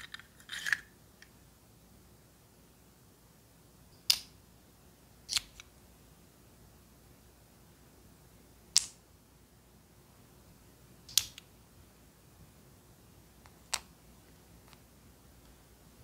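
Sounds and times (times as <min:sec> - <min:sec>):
small plastic pieces clicking: 0:00.0 - 0:00.9.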